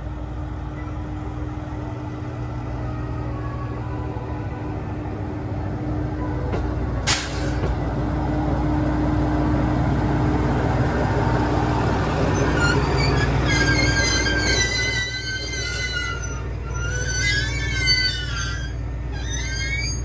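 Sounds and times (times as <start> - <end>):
diesel railcar engine droning: 0.0 - 20.0
brake air hiss: 7.1 - 7.7
brakes squealing: 11.8 - 20.0.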